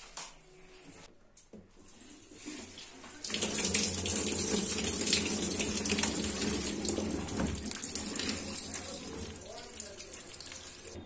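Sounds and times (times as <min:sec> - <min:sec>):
water gushing from hose into tub: 0:03.2 - 0:11.0.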